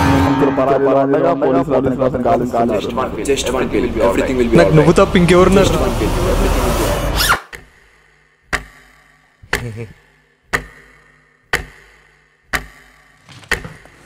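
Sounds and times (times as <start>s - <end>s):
clock ticking: 7.5s - 14.0s.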